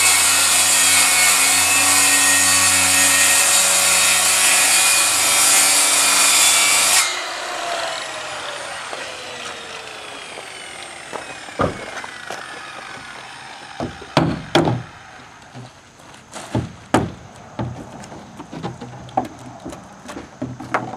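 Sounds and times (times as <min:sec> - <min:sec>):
power saw cutting wood: 0:00.0 - 0:15.4
saw blade winding down: 0:07.1 - 0:14.2.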